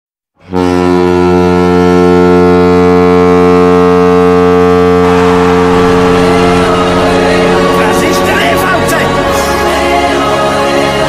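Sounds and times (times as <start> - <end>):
goal horn blast: 0.4 - 9.2
noisy rush: 3.4 - 11.0.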